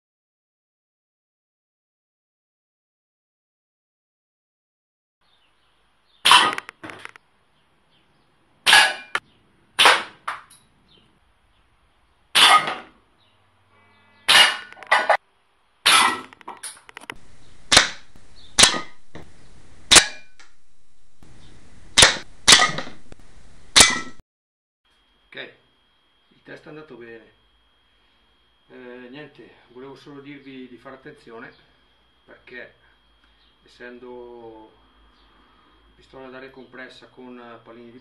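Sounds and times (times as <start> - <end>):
air pistol shots popping: 6.2 - 6.9, 9.8 - 10.3, 12.4 - 12.9, 17.7 - 19.3, 19.9 - 20.6, 22.0 - 23.1, 23.7 - 24.2
faint steady hiss: 17.1 - 23.8.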